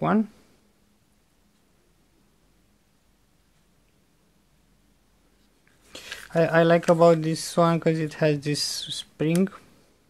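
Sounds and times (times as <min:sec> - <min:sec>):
person speaking: 0:05.9 - 0:09.8.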